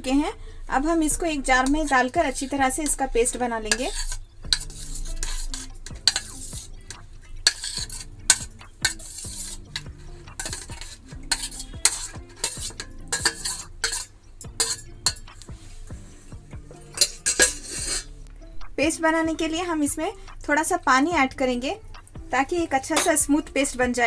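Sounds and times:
metal spoon scraping steel bowls: 0:01.1 - 0:18.2, 0:22.8 - 0:23.7.

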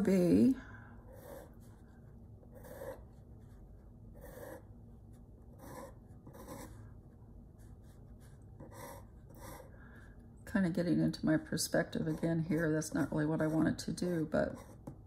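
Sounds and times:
pencil strokes on paper: 0:11.7 - 0:15.0.

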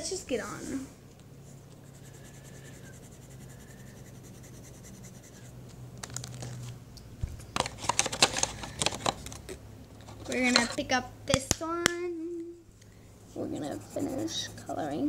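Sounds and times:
faint low hum: 0:00.0 - 0:15.0
handling rustling and clicking: 0:06.0 - 0:10.8.

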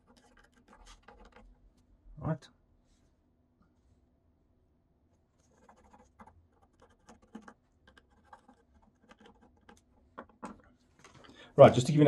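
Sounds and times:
faint pencil scratching: 0:00.0 - 0:01.7, 0:05.2 - 0:10.6.

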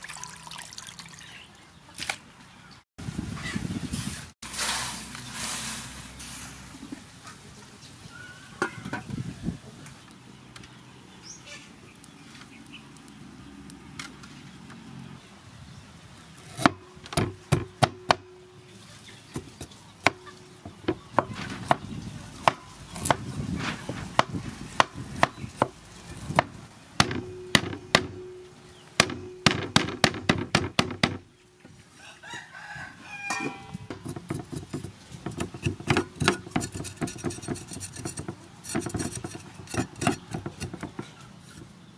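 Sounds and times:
knife scraping ginger: 0:34.0 - 0:41.7.

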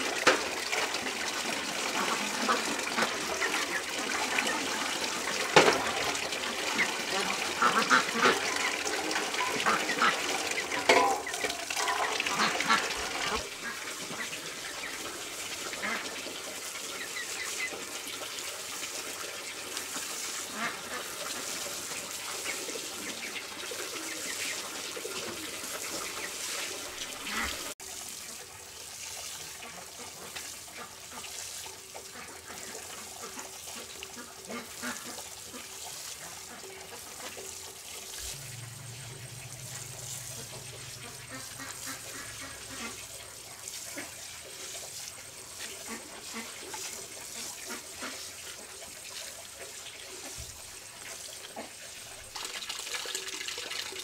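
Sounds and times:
tap running into basin: 0:00.0 - 0:54.0
watering can sprinkling on soil: 0:00.0 - 0:54.0
farm birds calling: 0:05.7 - 0:15.0, 0:38.2 - 0:44.1.

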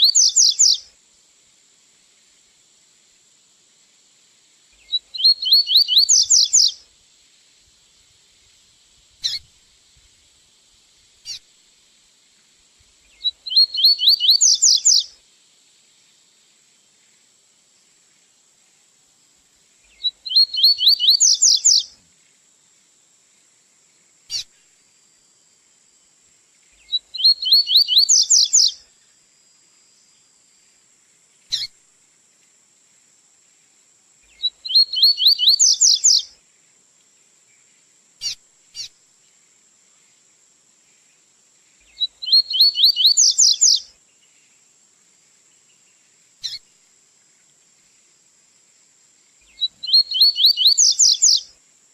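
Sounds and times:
bird song with rising notes: 0:05.1 - 0:06.7, 0:13.5 - 0:15.0, 0:20.2 - 0:21.8, 0:27.2 - 0:28.7, 0:34.6 - 0:36.2, 0:42.3 - 0:43.8, 0:49.8 - 0:51.4.

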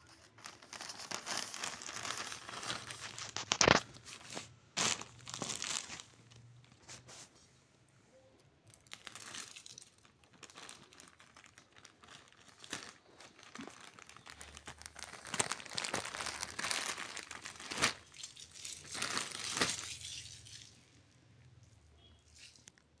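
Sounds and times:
plastic bag crinkling: 0:00.0 - 0:07.0, 0:08.7 - 0:20.8.

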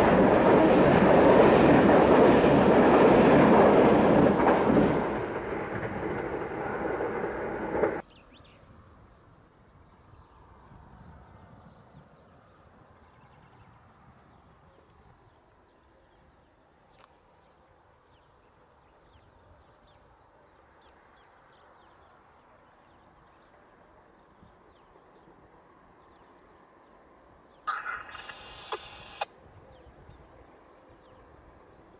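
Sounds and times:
faint bird chirps: 0:27.6 - 0:31.3.

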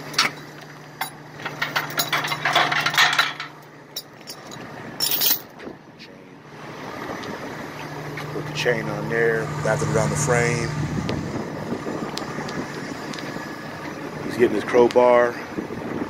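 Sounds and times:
steel chain clinking and rattling: 0:00.0 - 0:05.6
truck engine idling: 0:06.2 - 0:14.3.

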